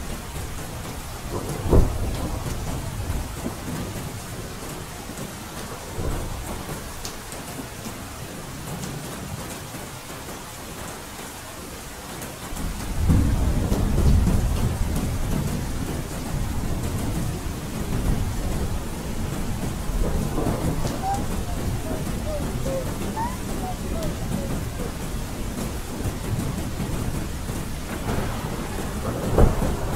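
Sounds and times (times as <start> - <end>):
low rumble of thunder: 0.0 - 9.4, 12.5 - 29.9
steady rain falling: 0.0 - 29.9
thunder clap: 0.4 - 4.2, 12.6 - 29.9.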